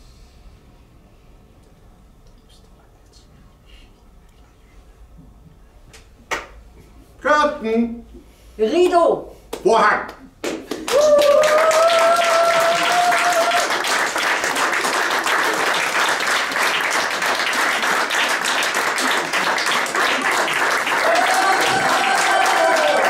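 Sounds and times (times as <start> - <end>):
audience applauding: 10.4 - 23.0.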